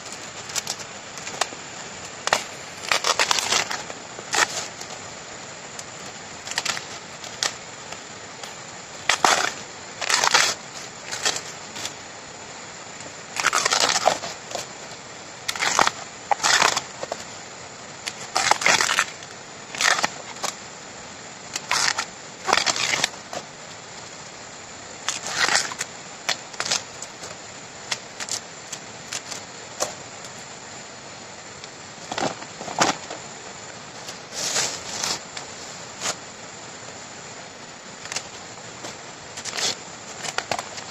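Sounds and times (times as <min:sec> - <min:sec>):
bamboo sheath tearing: 0:00.4 - 0:05.0, 0:05.8 - 0:12.0, 0:13.3 - 0:14.7, 0:15.4 - 0:17.3, 0:18.0 - 0:20.6, 0:21.5 - 0:23.5, 0:25.0 - 0:30.0, 0:38.0 - 0:40.9.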